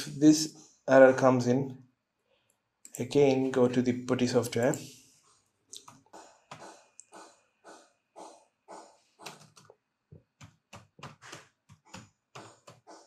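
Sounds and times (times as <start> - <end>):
keyboard keys clicking: 9.2 - 9.7.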